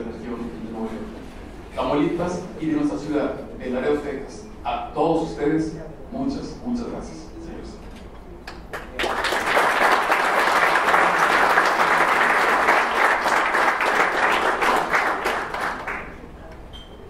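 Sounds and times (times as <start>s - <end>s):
audience applauding: 8.7s - 16.3s.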